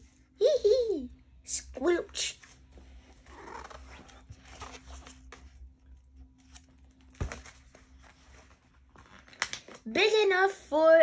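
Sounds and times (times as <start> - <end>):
low steady hum: 0.0 - 11.0
book page handling rustles: 2.4 - 10.2.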